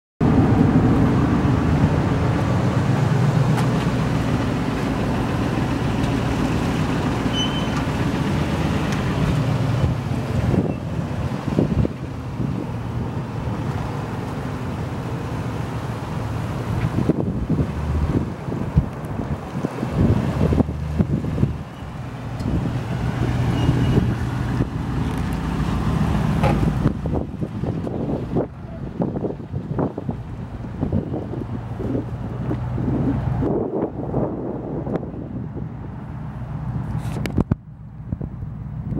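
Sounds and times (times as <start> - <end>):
wind buffeting microphone: 0.2 - 14.3, 16.2 - 38.9
pickup truck engine idling: 0.4 - 23.3.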